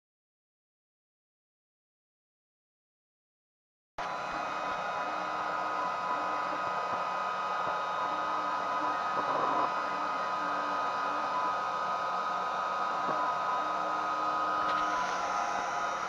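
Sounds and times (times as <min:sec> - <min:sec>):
high whine: 0:04.0 - 0:16.0
laser engraver fan rush: 0:04.0 - 0:16.0.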